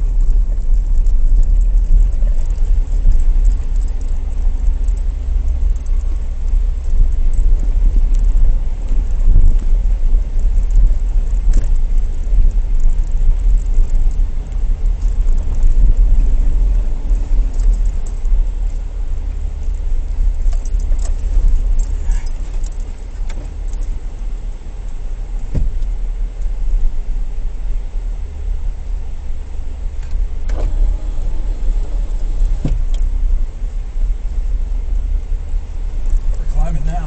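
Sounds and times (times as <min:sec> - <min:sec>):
engine and tyre rumble: 0:00.0 - 0:37.0
knocks over bumps: 0:25.4 - 0:25.9.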